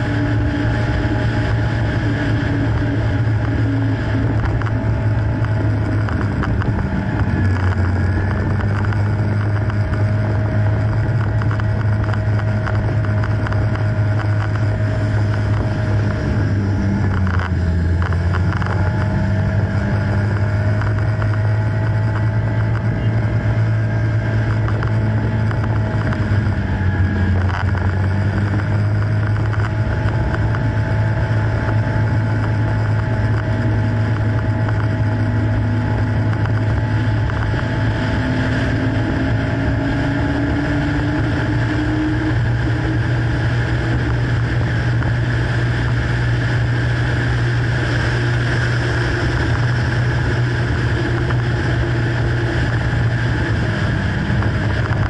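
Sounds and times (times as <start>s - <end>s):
motorcycle engine drone: 0.0s - 55.0s
wind rushing over microphone: 0.0s - 55.0s.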